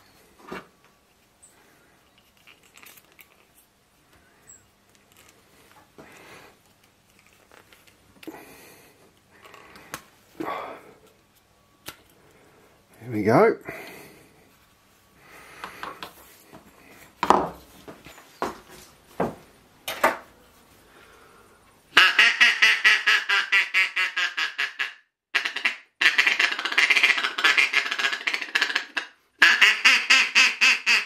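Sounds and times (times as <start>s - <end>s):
duck call quacks: 21.9s - 31.0s.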